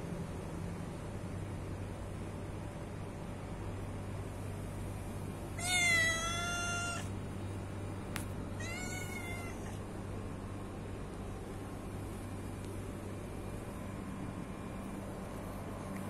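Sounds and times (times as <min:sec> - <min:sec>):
cat meowing: 0:05.6 - 0:07.2, 0:08.6 - 0:09.8.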